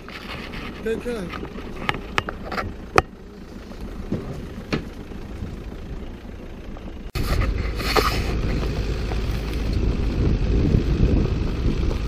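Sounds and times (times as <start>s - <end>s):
car driving on dirt track: 0.0s - 12.0s
wind rumble on microphone: 7.1s - 12.0s.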